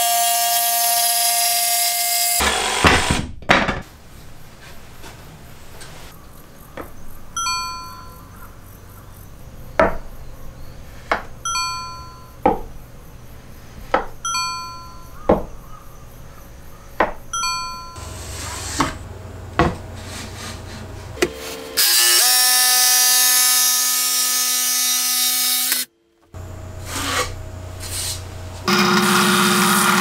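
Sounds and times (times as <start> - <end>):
bright ringing chime: 7.4 - 8.4, 11.4 - 12.4, 14.2 - 15.2, 17.3 - 18.0
jigsaw motor: 28.7 - 30.0.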